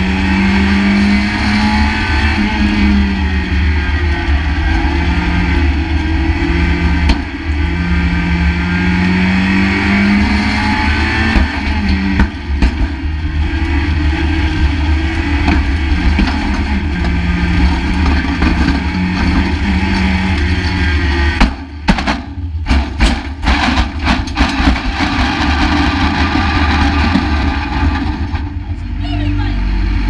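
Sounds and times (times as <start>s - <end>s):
road noise: 0.0s - 30.0s
small car engine running hard: 0.0s - 30.0s
sharp knocks and bangs: 10.2s - 13.2s, 21.2s - 28.6s.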